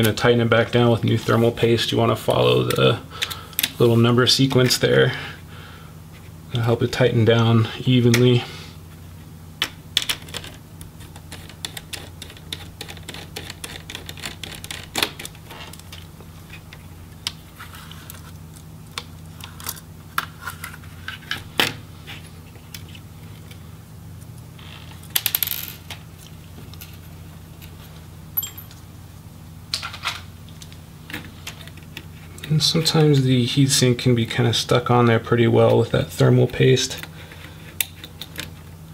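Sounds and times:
light metallic clinks: 28.4 - 28.9.

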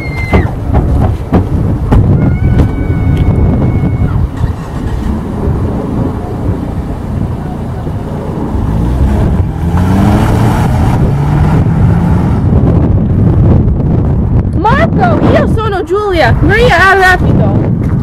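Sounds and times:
car engine accelerating: 4.1 - 14.4.

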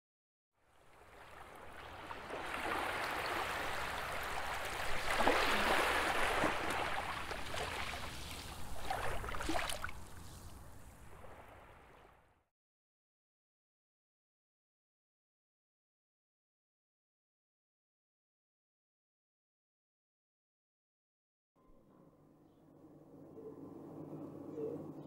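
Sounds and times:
rushing water-like noise: 1.0 - 12.0
splashy crackles: 1.4 - 10.6.

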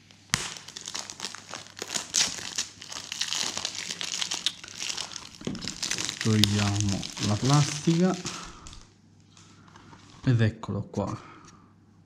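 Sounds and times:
plastic shrink-wrap crinkling: 0.0 - 8.9.

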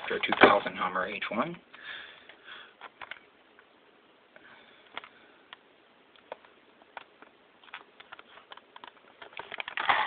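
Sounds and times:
blister pack crinkling: 7.0 - 10.0.

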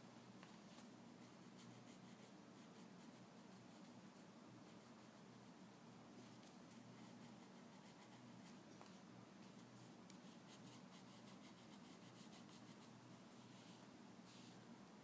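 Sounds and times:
low steady hum: 0.0 - 15.0
pencil scratching on paper: 6.7 - 8.6, 10.2 - 13.0.

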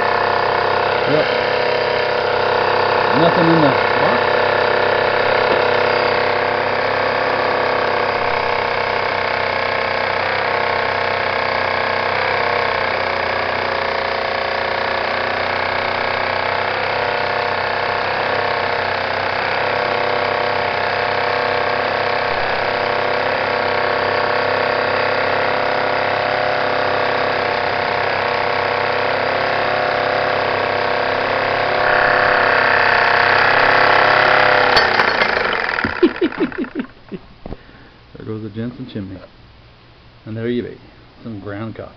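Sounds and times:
coffee grinder grinding beans: 0.0 - 37.1
toy steam engine whirring: 31.2 - 36.9.

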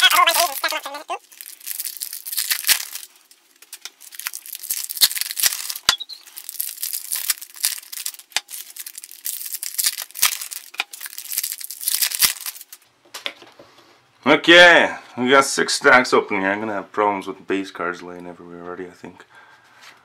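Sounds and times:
foil wrappers tearing and crinkling: 0.0 - 12.8.

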